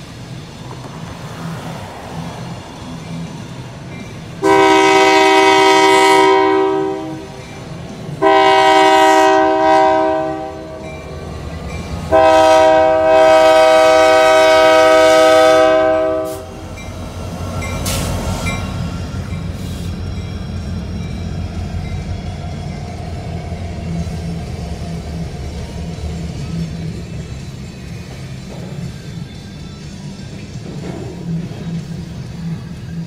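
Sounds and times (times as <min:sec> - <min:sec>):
locomotive rumbling: 0:00.0 - 0:33.0
locomotive air horn blasts: 0:04.4 - 0:07.4, 0:08.2 - 0:10.9, 0:12.1 - 0:16.6.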